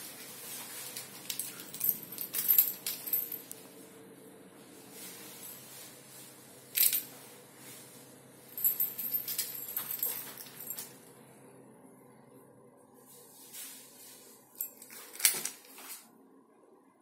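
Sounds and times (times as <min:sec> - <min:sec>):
keys jingling: 0:00.8 - 0:03.6, 0:08.5 - 0:10.9, 0:14.6 - 0:15.8.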